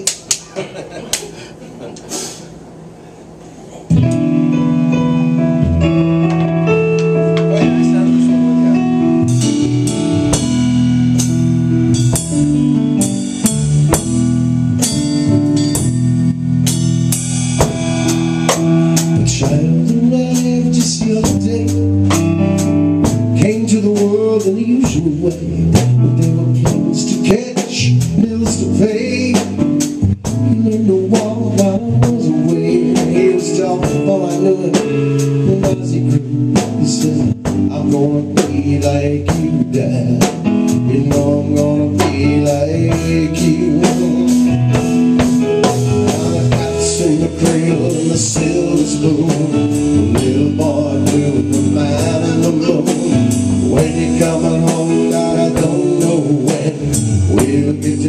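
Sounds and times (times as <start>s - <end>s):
drum kit beat: 0.0s - 2.8s, 3.9s - 58.0s
keyboard chords: 2.6s - 58.0s
man singing lead vocal: 18.6s - 45.1s, 46.0s - 58.0s.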